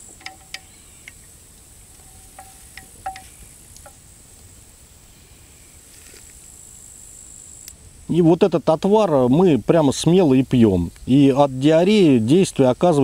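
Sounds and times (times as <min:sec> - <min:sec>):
faint high-pitched drone: 0:00.0 - 0:04.2.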